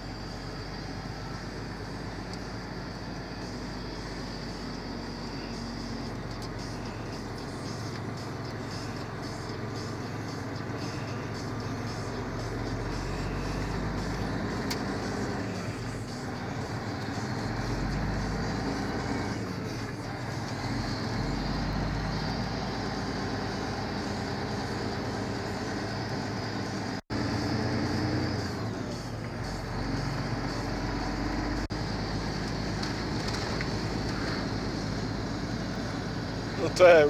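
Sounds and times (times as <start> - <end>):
diesel truck engine running: 0.0 - 37.0
tyre noise on wet road: 31.8 - 34.6.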